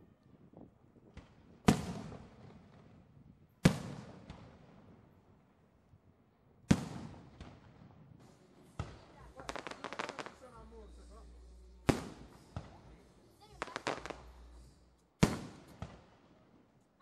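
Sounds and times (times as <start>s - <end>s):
faint fireworks pops: 1.0s - 3.0s, 3.6s - 4.8s, 6.7s - 10.5s, 11.9s - 14.4s, 15.1s - 16.4s
fireworks bangs with echo: 1.1s - 3.0s, 3.6s - 5.0s, 6.7s - 10.6s, 11.8s - 14.6s, 15.2s - 16.4s.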